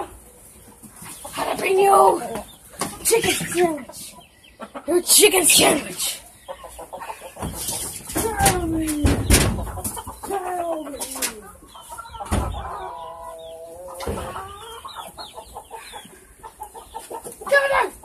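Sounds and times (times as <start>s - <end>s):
chickens clucking and squawking: 0.0s - 18.0s
sharp knocks: 7.4s - 10.0s.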